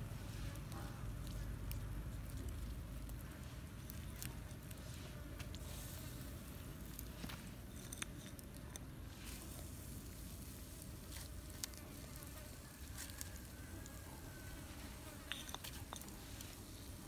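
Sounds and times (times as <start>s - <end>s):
faint buzzing of insects: 8.6s - 17.0s.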